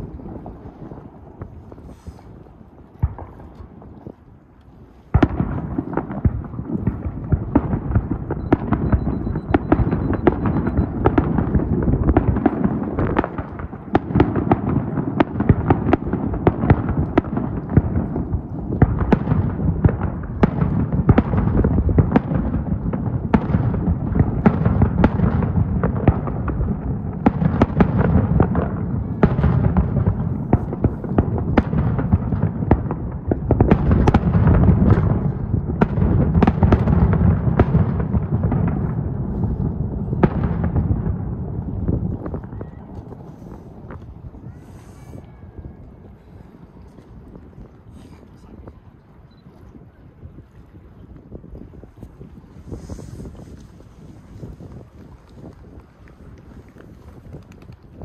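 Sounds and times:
fireworks bursting: 5.1s - 45.7s.

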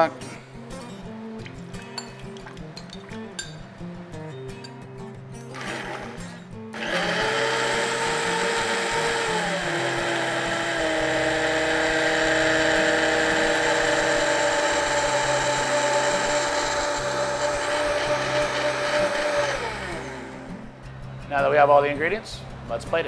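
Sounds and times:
blender motor running: 5.5s - 20.6s.

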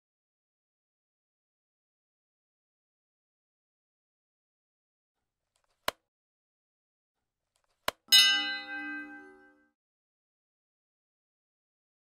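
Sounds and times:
bell chime: 8.1s - 9.7s.

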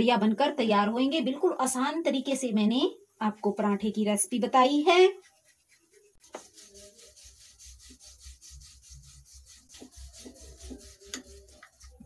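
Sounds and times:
rolling pin rubbing on dough: 4.6s - 12.0s.

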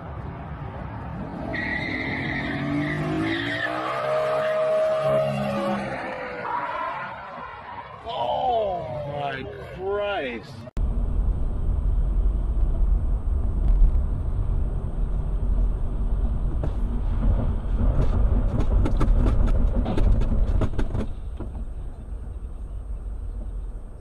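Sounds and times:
car engine and tyre rumble: 0.0s - 24.0s
sharp clicks and knocks: 16.4s - 21.8s.

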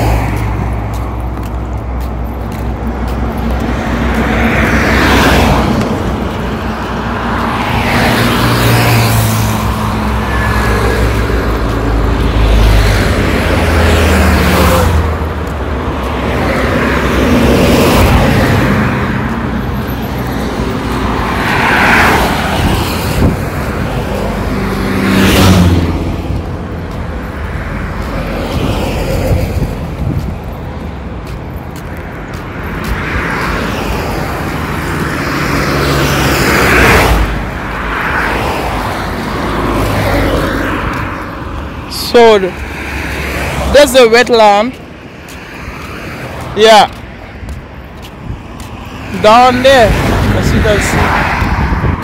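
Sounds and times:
cars passing on highway: 0.0s - 52.0s.

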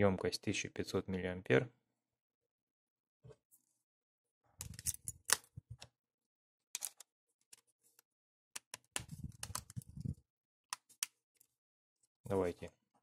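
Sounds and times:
plastic phone parts clicking: 6.8s - 7.1s.

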